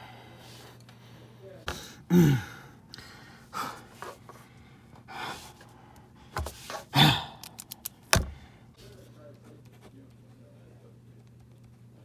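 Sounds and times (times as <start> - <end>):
person gasping and sighing: 1.7 - 3.8, 6.9 - 7.7
sharp clicks: 7.4 - 8.2.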